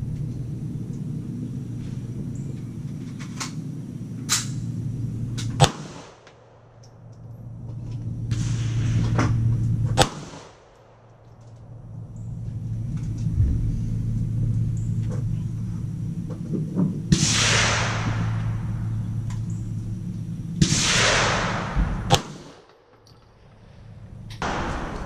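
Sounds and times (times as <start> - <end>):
steady low rumble: 0.0 - 25.0
pistol shots: 5.5 - 6.8, 10.0 - 11.1, 20.6 - 22.9.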